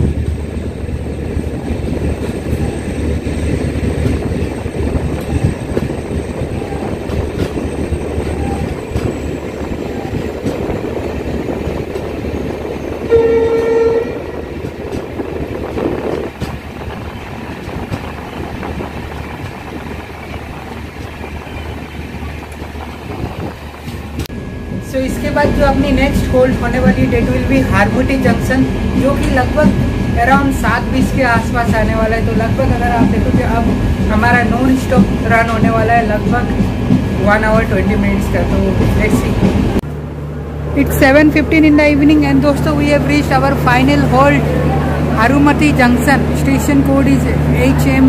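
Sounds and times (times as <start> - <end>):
train running rumble: 0.0 - 48.0
train horn: 13.0 - 14.5.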